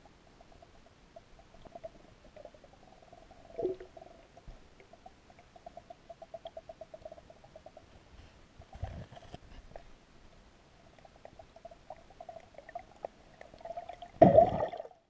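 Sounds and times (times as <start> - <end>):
underwater gurgle: 0.0 - 9.4, 10.8 - 15.0
rapid underwater ticks: 0.0 - 9.9, 10.8 - 14.1.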